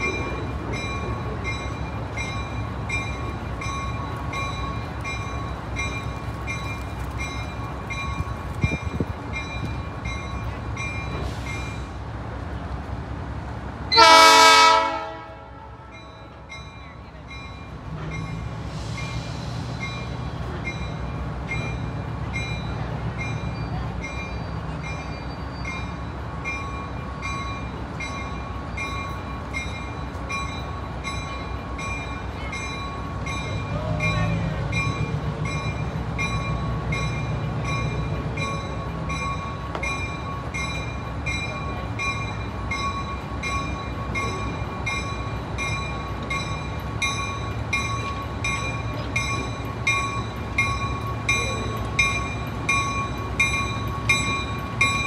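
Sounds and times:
railroad bell ringing: 0:00.0 - 0:12.0, 0:13.9 - 0:55.0
train rumble: 0:00.0 - 0:55.0.

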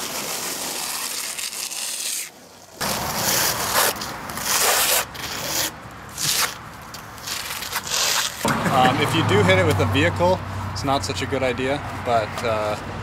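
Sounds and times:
trowel scraping stucco on wall: 0:00.0 - 0:08.5.

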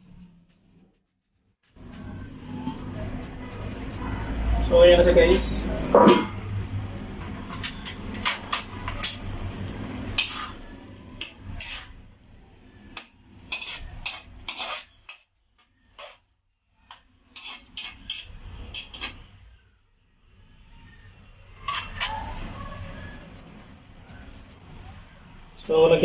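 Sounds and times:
metal spatula scraping a wok: 0:07.2 - 0:19.4, 0:21.5 - 0:22.5.

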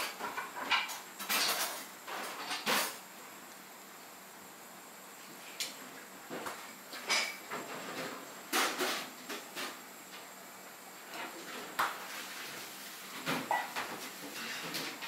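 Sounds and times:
steady background hiss: 0:00.0 - 0:15.0
dishes and utensils clinking: 0:13.2 - 0:15.0.

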